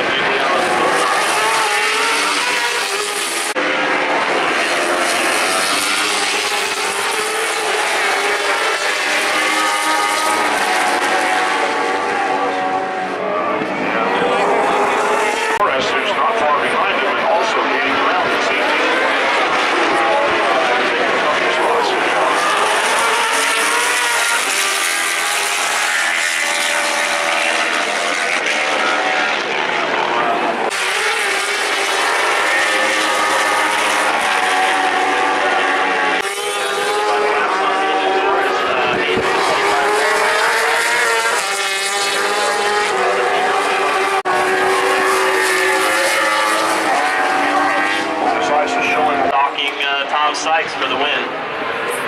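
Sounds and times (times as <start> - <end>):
racing motorcycles at high revs: 0.0 - 51.2.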